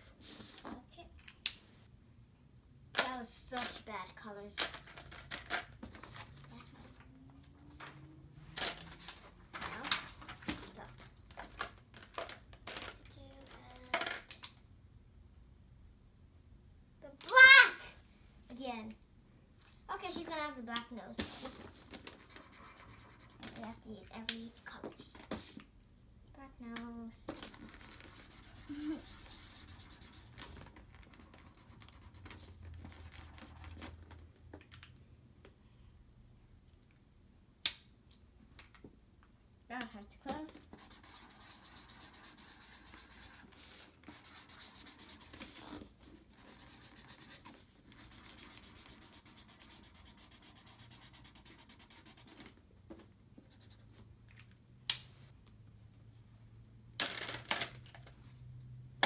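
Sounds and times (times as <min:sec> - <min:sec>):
marker scribbling on paper: 0:21.2 - 0:23.6, 0:27.5 - 0:32.6, 0:40.4 - 0:52.5.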